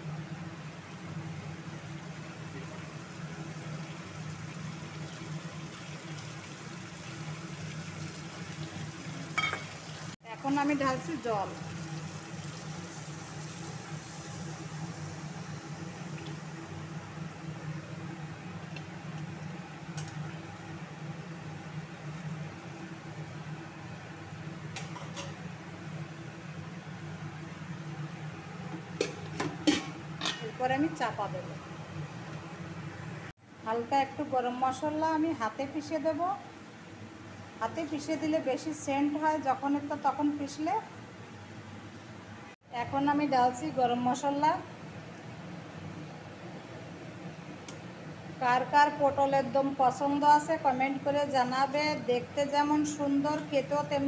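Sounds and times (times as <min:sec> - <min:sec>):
low mechanical hum: 0:00.0 - 0:54.0
vegetables sizzling in a pan: 0:03.0 - 0:17.2.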